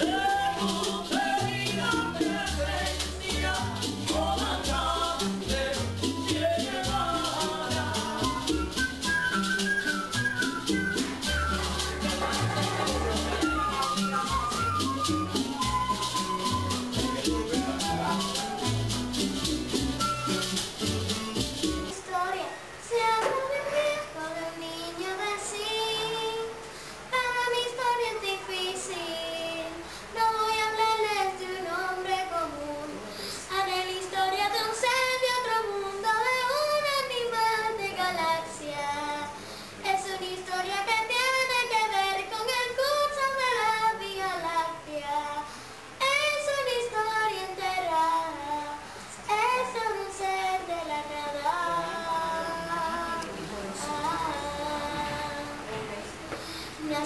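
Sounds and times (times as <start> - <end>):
child singing: 0.0 - 8.8, 21.9 - 56.2, 56.8 - 57.0.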